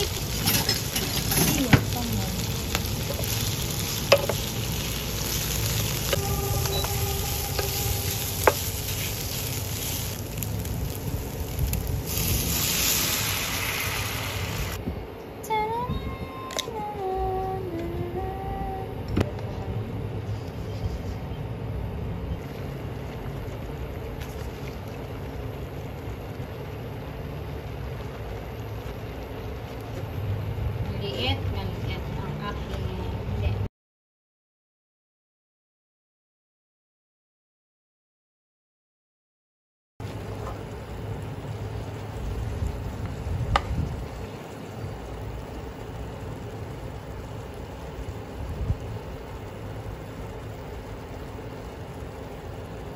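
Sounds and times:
broth simmering in a pan: 0.0 - 14.8, 22.4 - 32.5, 40.0 - 52.9.

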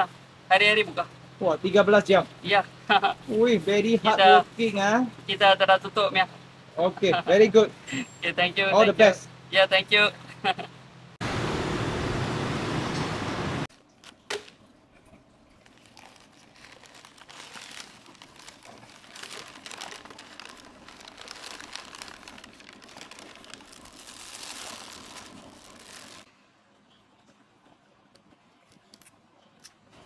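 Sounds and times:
paper and plastic crinkling: 15.5 - 26.3.

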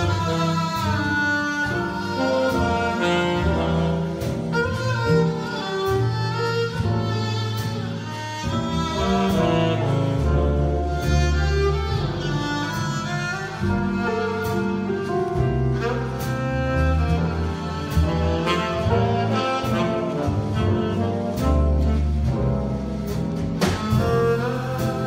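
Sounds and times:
jazz band playing: 0.0 - 25.0
violin: 0.0 - 25.0.

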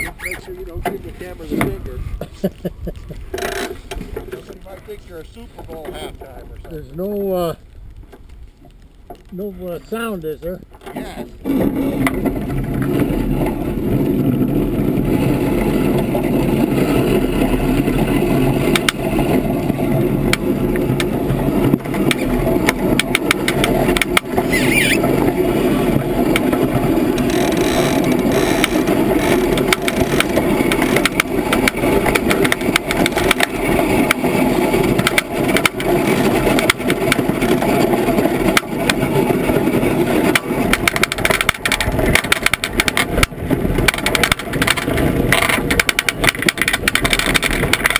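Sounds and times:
high squeal: 0.0 - 0.6, 24.4 - 25.0
iceboat runners rumbling on ice: 0.0 - 47.9
rigging clicks and rattles: 0.0 - 47.9.

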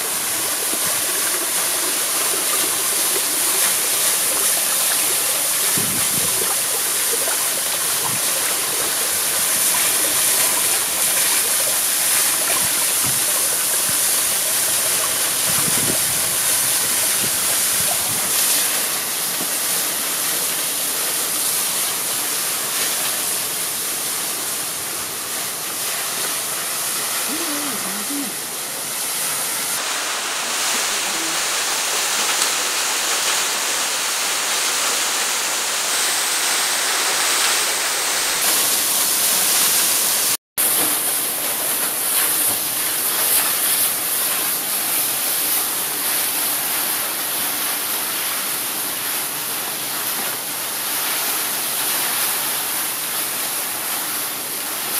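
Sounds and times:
water rushing over rocks: 0.0 - 54.9.

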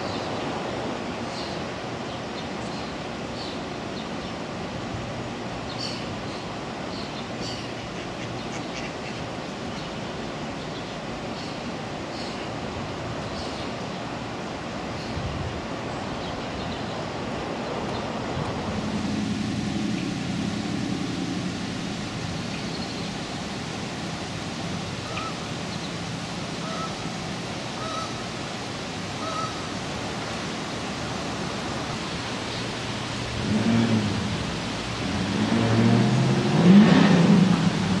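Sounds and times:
outdoor river background noise: 0.0 - 38.0
low hum: 18.4 - 23.0
faint bird calls: 25.0 - 25.9, 26.6 - 27.1, 27.8 - 28.2, 29.2 - 29.7.

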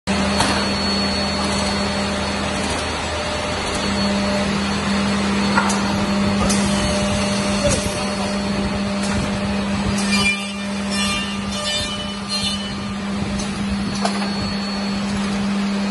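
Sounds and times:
woodworking machine whirring hum: 0.1 - 15.9.

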